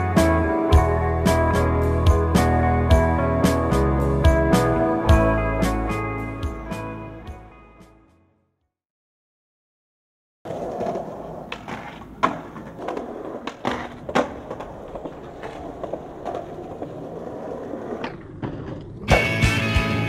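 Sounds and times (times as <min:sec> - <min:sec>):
skateboard wheels rolling on concrete: 0:00.0 - 0:07.3, 0:10.5 - 0:20.0
skateboard clacking on concrete: 0:10.5 - 0:19.4.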